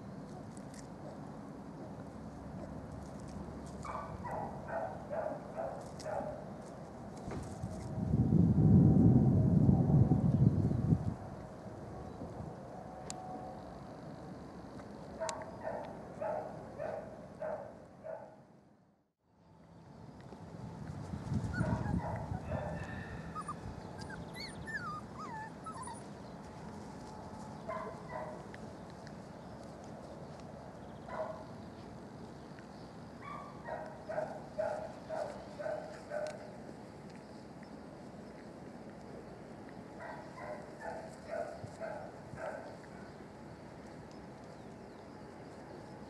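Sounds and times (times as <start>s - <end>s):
puppies yipping: 21.4s - 26.2s.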